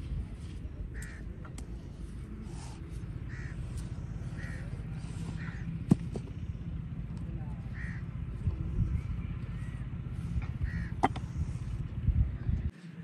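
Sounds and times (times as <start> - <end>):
low rumble: 0.0 - 12.7
crow cawing: 1.0 - 1.3, 3.3 - 5.7, 7.7 - 8.1, 10.6 - 11.1.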